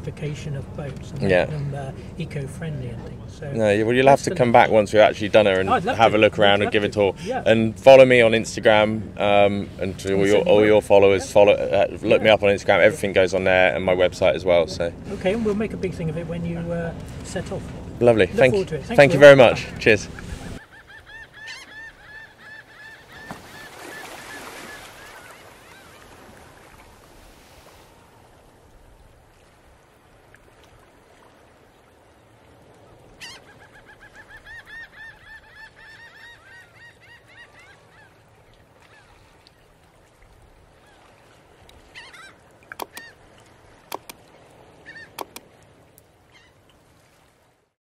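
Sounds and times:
geese honking: 18.5 - 26.0
sharp clicks: 42.7 - 43.1, 43.9 - 44.2, 45.2 - 45.5.

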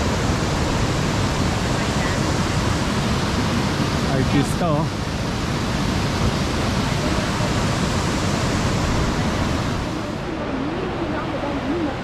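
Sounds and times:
waterfall roaring: 0.0 - 12.0.

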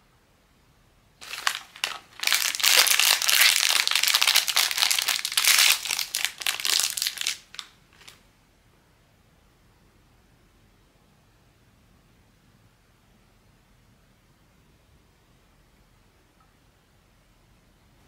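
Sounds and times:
packaging crinkling: 1.2 - 8.2.

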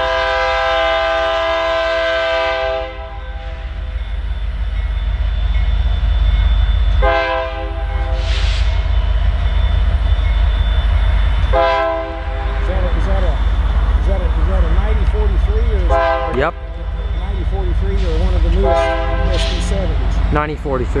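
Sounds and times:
train air horn chord: 0.0 - 3.8, 7.0 - 8.7, 11.5 - 13.0, 14.8 - 16.4, 18.0 - 19.6
train low rumble: 0.0 - 21.0.

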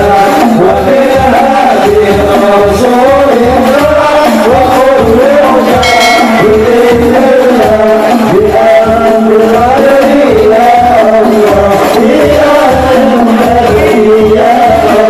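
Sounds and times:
men singing together: 0.0 - 15.0
low frame-drum beat: 4.5 - 8.4.

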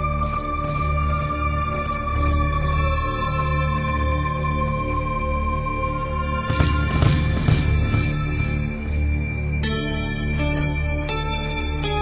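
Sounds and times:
slow melody of held notes: 9.6 - 12.0.

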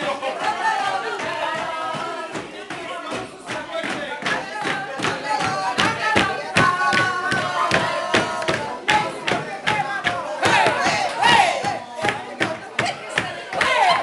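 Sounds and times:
hands clapping in a steady beat: 0.0 - 14.0
women singing and shouting: 0.0 - 14.0.

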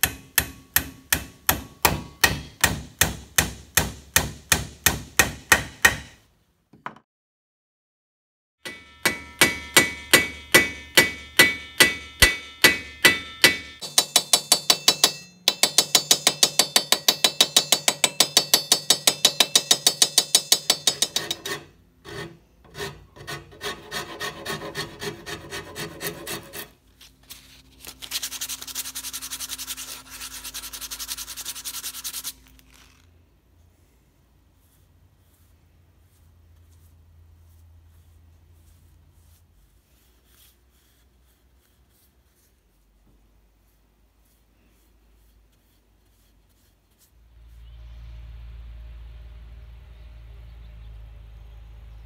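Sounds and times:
hacksaw cutting metal: 8.6 - 26.8
file rasping on wood: 16.0 - 26.8.

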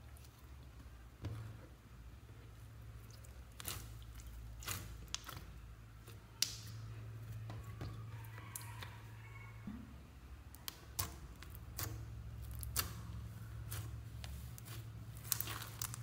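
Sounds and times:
slime crackling and popping: 3.5 - 6.8, 10.5 - 16.0.

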